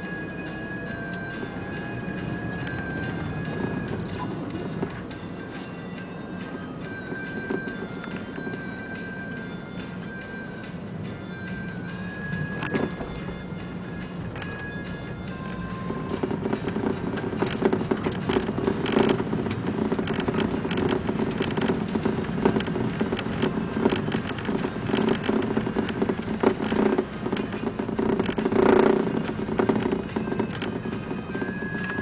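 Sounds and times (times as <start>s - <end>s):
car engine hum: 0.0s - 32.0s
tyre and road noise: 0.0s - 32.0s.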